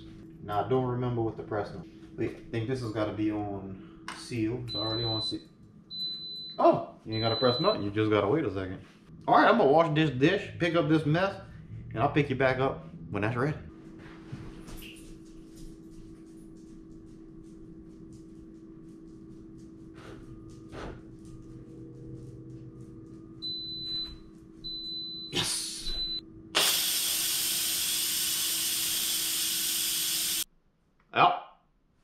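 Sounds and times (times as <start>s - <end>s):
faint hum: 0.0s - 26.6s
high beeps: 4.7s - 8.0s
pressure cooker steam hiss: 26.6s - 30.4s.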